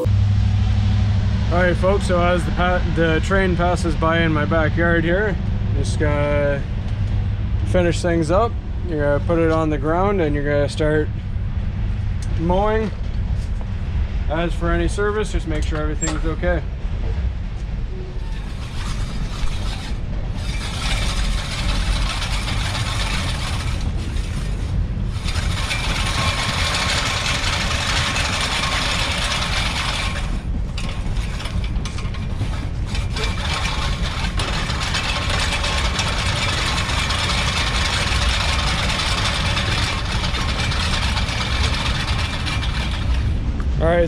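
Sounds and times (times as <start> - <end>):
low rumble: 0.0 - 44.0
reel mower whirring: 18.3 - 43.6.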